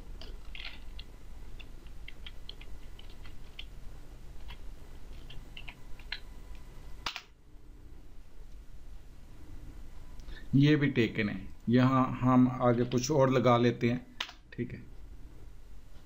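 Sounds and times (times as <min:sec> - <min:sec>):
computer keyboard typing: 0:00.2 - 0:03.7, 0:04.4 - 0:06.3.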